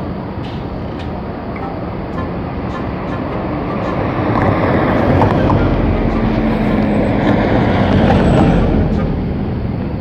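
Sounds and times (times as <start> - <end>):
car driving past: 2.1 - 9.5.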